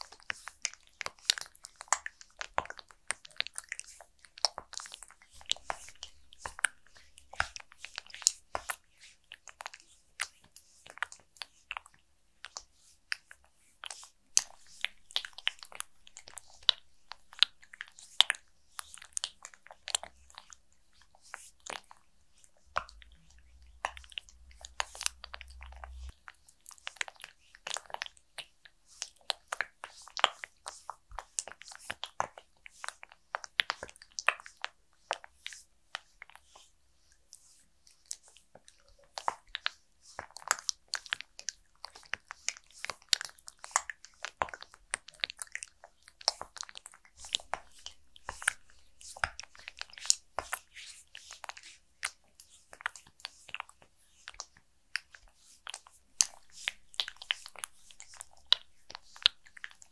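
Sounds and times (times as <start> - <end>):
wet clicks of oiled skin: 38.0 - 59.9.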